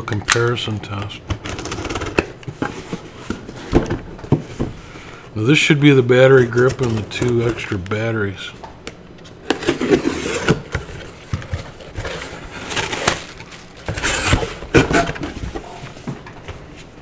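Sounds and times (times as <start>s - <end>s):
cardboard box scraping and rustling: 9.6s - 15.9s.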